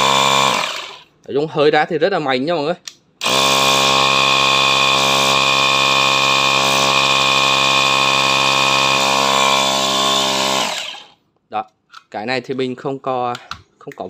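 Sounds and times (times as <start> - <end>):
air compressor motor droning: 0.0 - 1.0, 3.2 - 11.1.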